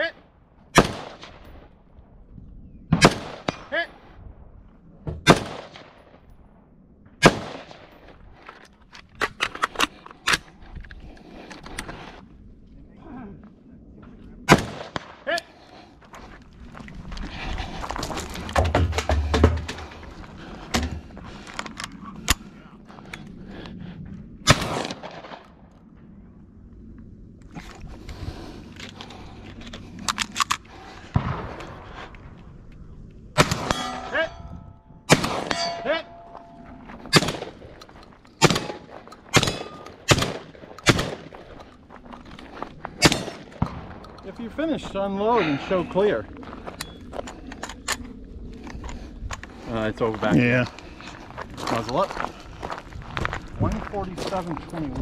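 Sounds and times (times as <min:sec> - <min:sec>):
gunshots: 0:00.7 - 0:01.4, 0:02.9 - 0:03.8, 0:05.2 - 0:06.2, 0:07.2 - 0:07.9, 0:14.5 - 0:15.4, 0:24.4 - 0:25.6, 0:31.1 - 0:32.0, 0:33.4 - 0:34.3, 0:35.1 - 0:36.2, 0:37.1 - 0:37.7, 0:38.4 - 0:41.4, 0:43.0 - 0:44.0
steel targets ringing: 0:33.6 - 0:34.8, 0:35.4 - 0:36.6.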